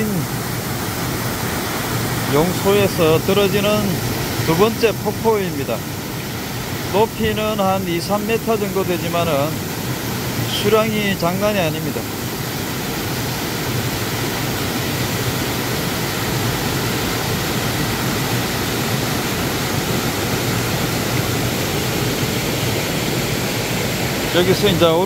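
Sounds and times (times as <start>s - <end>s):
waterfall rushing over rocks: 0.0s - 25.0s.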